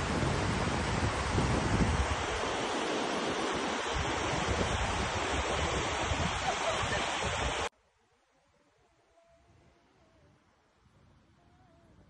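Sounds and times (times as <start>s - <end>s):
wind buffeting microphone: 0.0s - 7.7s.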